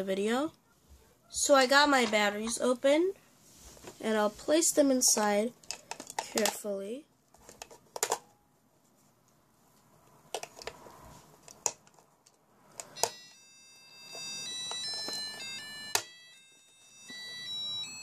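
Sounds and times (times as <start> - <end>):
beeping electronic melody: 13.0 - 18.0.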